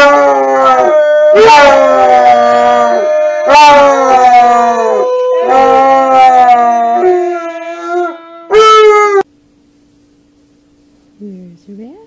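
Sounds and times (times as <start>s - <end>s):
dog howling: 0.0s - 9.3s.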